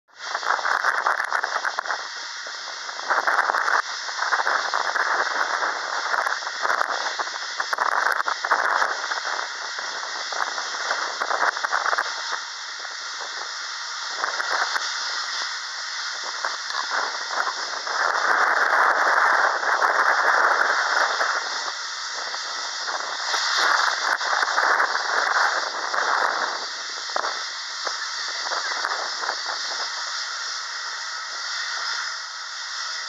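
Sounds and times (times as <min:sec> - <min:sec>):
wind buffeting microphone: 0:00.2 - 0:33.0.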